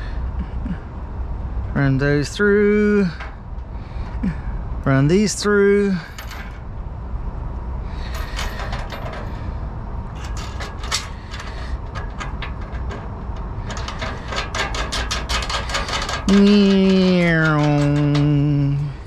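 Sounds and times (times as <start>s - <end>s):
steady low rumble: 0.0s - 19.0s
clicks and rustles of wires: 10.1s - 18.9s.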